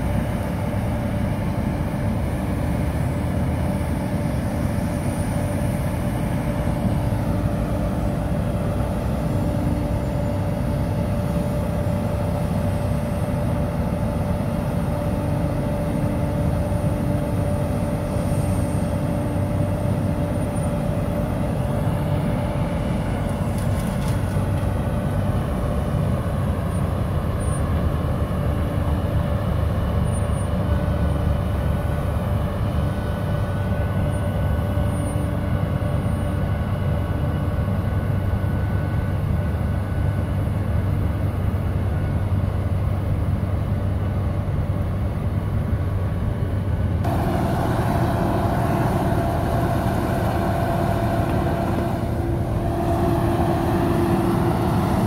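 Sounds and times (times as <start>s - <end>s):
heavy diesel rumble: 0.0s - 55.0s
steady whine: 0.0s - 55.0s.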